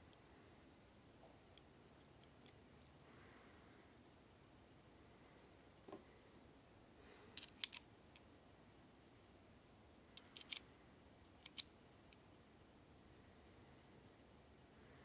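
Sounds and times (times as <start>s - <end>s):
metal parts clicking: 7.4s - 7.8s, 10.2s - 10.6s, 11.4s - 11.7s.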